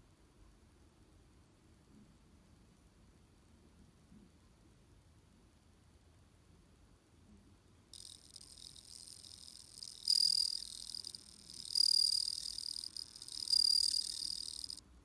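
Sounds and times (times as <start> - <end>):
cricket ringing trill: 8.0 - 14.8.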